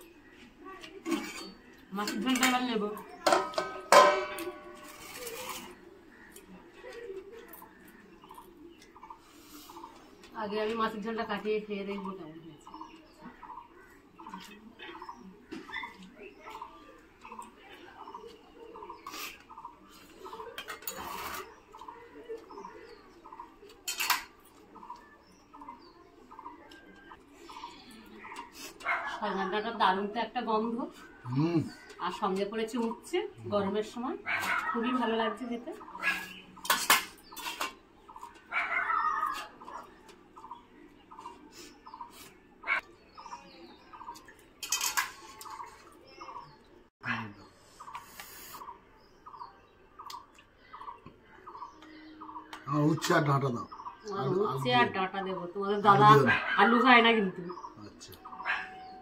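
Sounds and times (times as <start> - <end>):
people eating from steel plates: 0.0 - 59.0
plates clattering: 1.1 - 5.8, 23.8 - 25.0, 36.2 - 38.4, 44.6 - 45.7
steel plates and spoon clinking: 1.1 - 5.8, 20.4 - 21.6, 23.9 - 24.3, 36.6 - 37.8, 44.6 - 45.7.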